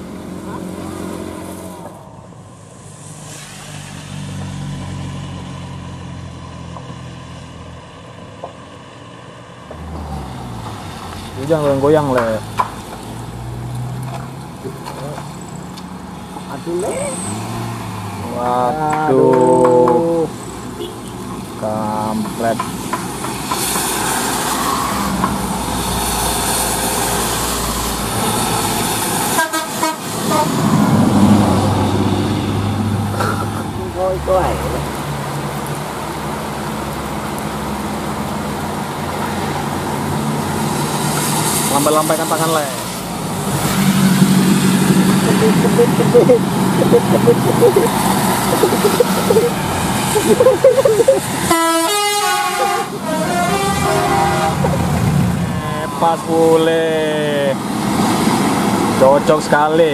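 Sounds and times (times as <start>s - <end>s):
heavy rain hissing: 0.0s - 4.3s, 34.2s - 55.3s
rain and tyres hissing: 0.0s - 59.9s
traffic on wet road: 0.0s - 59.9s
vehicle engines humming: 0.0s - 59.9s
bus horn toots: 29.3s - 30.8s, 51.4s - 55.0s
coach engine rumble: 44.4s - 55.6s.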